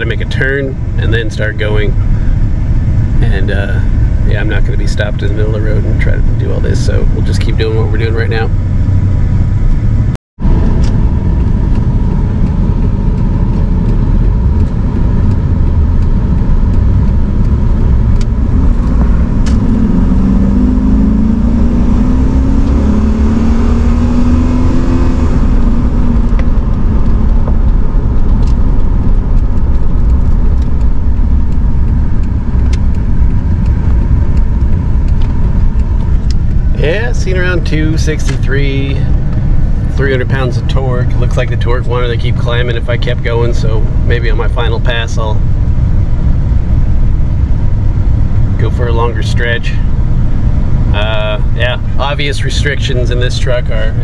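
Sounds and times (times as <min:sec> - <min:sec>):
road rumble: 0:00.0 - 0:54.0
truck engine accelerating: 0:00.0 - 0:54.0.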